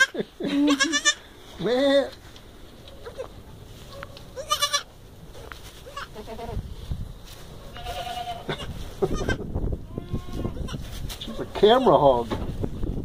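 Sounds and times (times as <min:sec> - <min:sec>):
goat kids bleating: 0:00.0 - 0:02.2, 0:03.0 - 0:03.4, 0:04.3 - 0:05.0, 0:05.8 - 0:06.8, 0:07.7 - 0:10.9
rustling in straw: 0:00.7 - 0:13.0.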